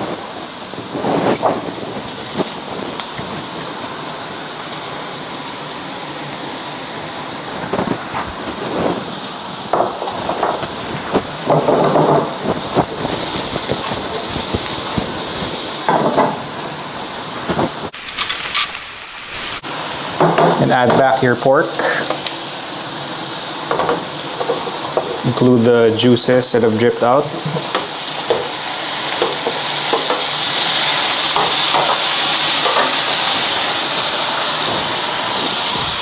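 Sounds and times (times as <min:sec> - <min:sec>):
mushrooms sizzling in a frying pan: 0:00.0 - 0:36.0
stirring scrapes and knocks: 0:23.7 - 0:25.3.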